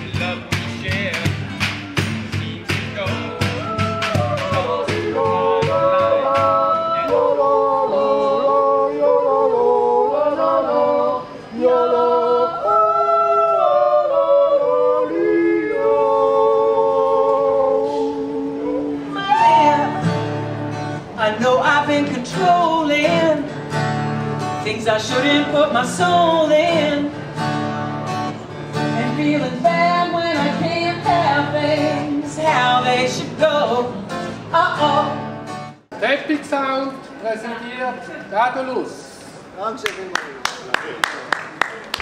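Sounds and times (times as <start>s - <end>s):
strummed acoustic guitar: 0.0s - 7.2s, 19.1s - 35.8s
woman singing: 18.1s - 20.2s, 29.0s - 35.2s.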